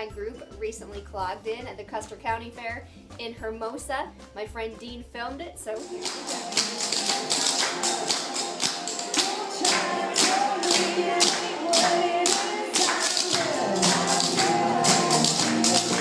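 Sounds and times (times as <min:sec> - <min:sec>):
recorded song with singing: 0:05.6 - 0:16.0.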